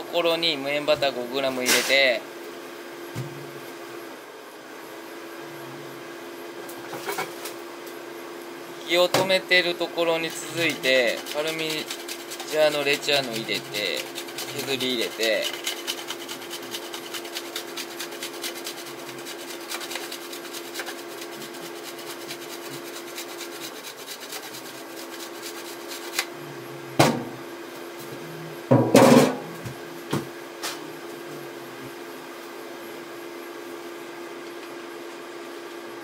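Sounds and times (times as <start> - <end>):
cheese rasping on grater: 10.1 - 26.3
sharp knocks: 28.7 - 29.5.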